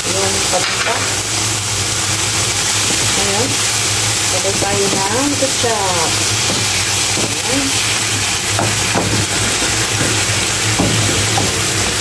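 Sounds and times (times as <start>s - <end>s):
vegetables sizzling in a frying pan: 0.0s - 12.0s
wooden spoon scraping a pan: 2.7s - 12.0s.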